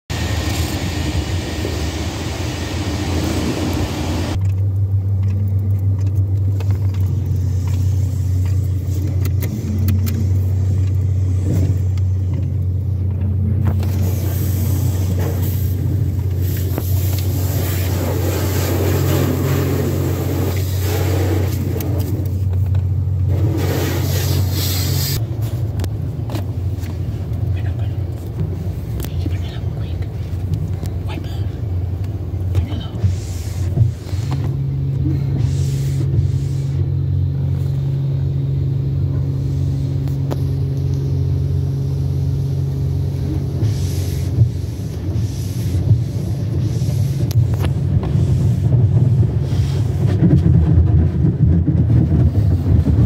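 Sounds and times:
car engine hum from inside: 0.1s - 53.0s
water spray hitting car: 13.6s - 22.6s, 23.2s - 25.7s, 42.8s - 50.7s.

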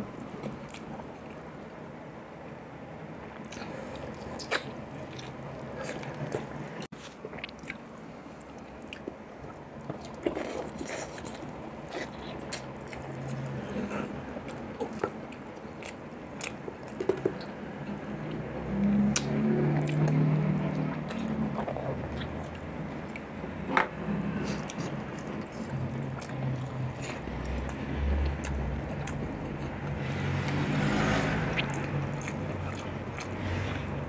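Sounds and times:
wet biting and chewing: 24.4s - 33.9s.

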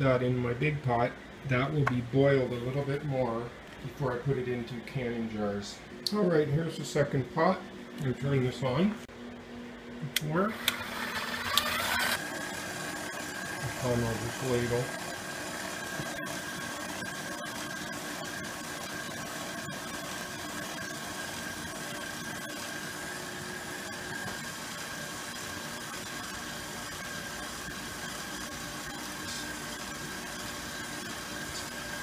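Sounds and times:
stand mixer motor whining: 10.4s - 32.0s.

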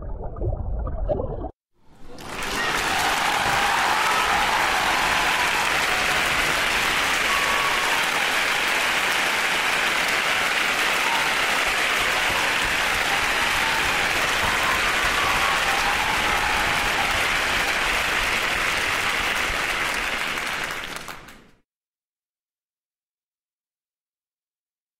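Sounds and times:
audience applauding: 1.9s - 21.6s.

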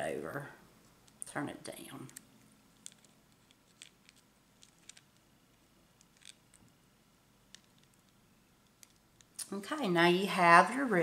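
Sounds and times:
small clicks of beads and wire: 2.0s - 5.3s, 6.0s - 6.8s, 7.5s - 9.4s.

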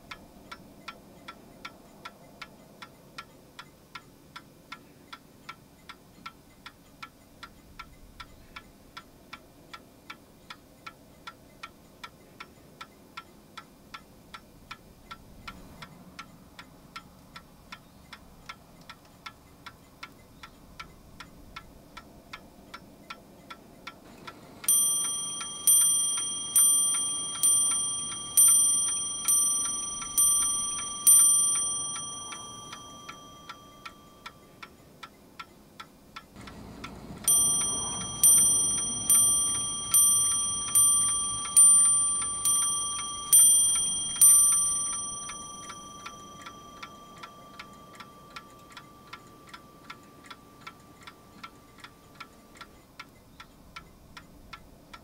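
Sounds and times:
clock ticking: 0.0s - 55.0s
clock bell striking: 24.6s - 34.4s, 37.2s - 52.1s.

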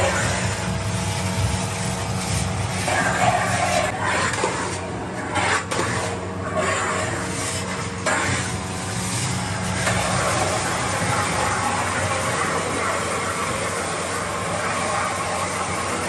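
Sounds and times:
metal spatula scraping pan: 2.3s - 8.6s.

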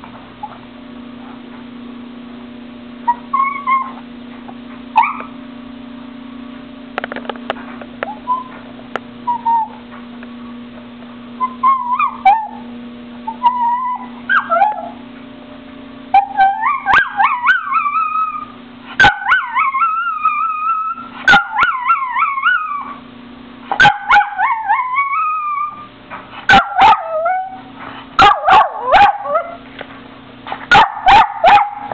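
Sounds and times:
dog yipping: 3.0s - 4.0s, 5.0s - 5.4s, 9.3s - 9.8s, 11.4s - 12.6s, 13.3s - 15.0s, 16.1s - 23.0s, 23.7s - 25.9s, 26.5s - 29.6s, 30.7s - 31.9s
dog whining: 3.0s - 4.1s, 5.0s - 5.4s, 8.0s - 8.6s, 9.2s - 9.8s, 11.4s - 15.0s, 16.1s - 23.0s, 23.8s - 25.9s, 26.5s - 29.6s.

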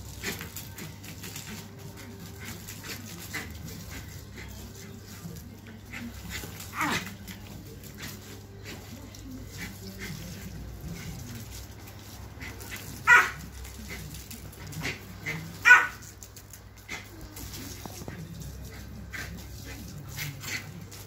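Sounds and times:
dog barking: 13.0s - 13.4s, 15.6s - 16.1s
dog yelping: 13.0s - 13.4s, 15.6s - 16.0s.

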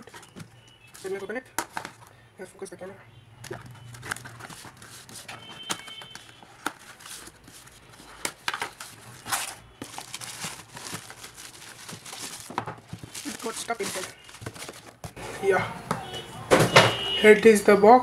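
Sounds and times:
bubble wrap crinkling: 0.0s - 2.1s, 3.5s - 15.2s.

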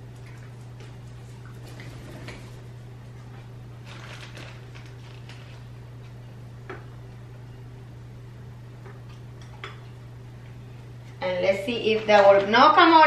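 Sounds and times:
steady low hum: 0.0s - 13.0s
plastic bag rustling: 3.8s - 5.7s.

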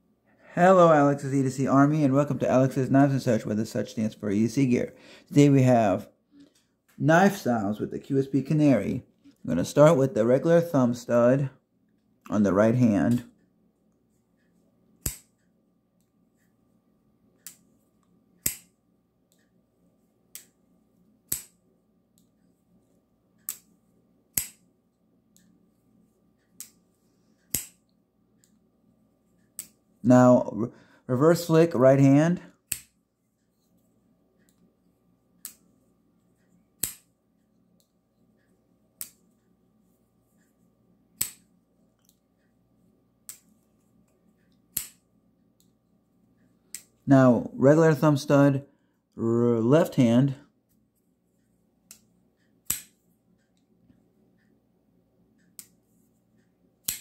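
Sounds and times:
folding knife clicks: 15.0s - 15.4s, 21.3s - 21.6s, 24.3s - 24.6s, 27.5s - 27.8s, 36.8s - 37.0s, 41.2s - 41.4s, 44.7s - 45.0s.

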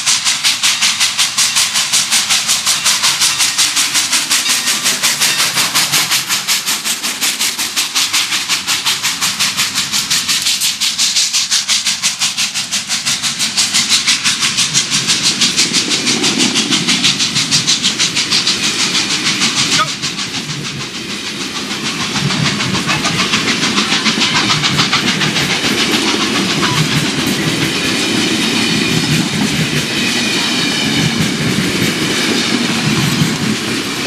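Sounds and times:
steam locomotive chuffing: 0.0s - 34.0s
passenger cars rolling by: 14.7s - 34.0s.

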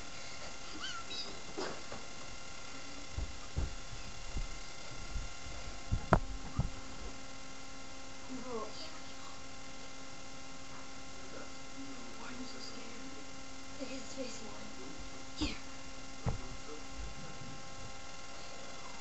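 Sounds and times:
electrical hum: 0.0s - 19.0s
camera thumps and bumps: 3.0s - 7.3s, 16.2s - 18.1s.

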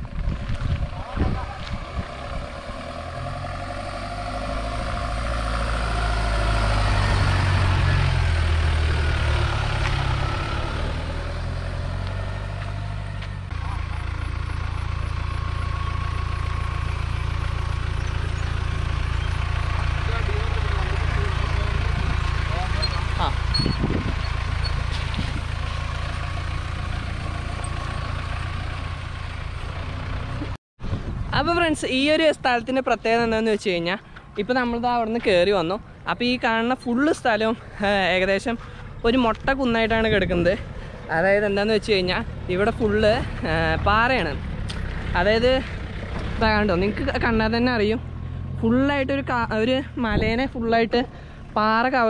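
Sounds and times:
vehicle engine climbing slope: 0.0s - 52.0s.

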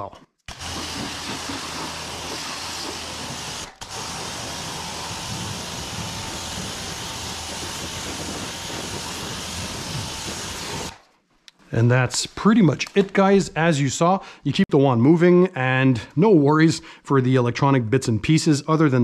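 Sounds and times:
pressure washer jet hissing: 0.5s - 11.0s.

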